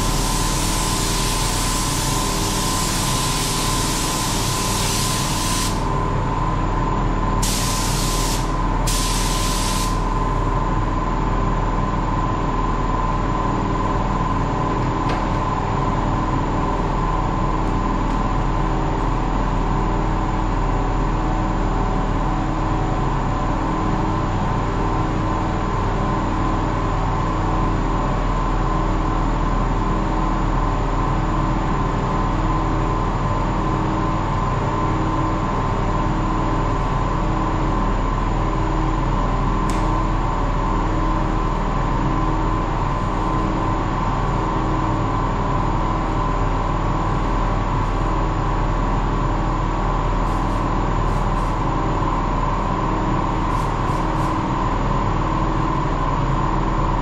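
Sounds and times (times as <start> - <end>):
paint spray gun hissing: 0.0 - 5.9, 7.4 - 10.2, 53.5 - 54.4
steady mechanical hum: 0.0 - 57.0.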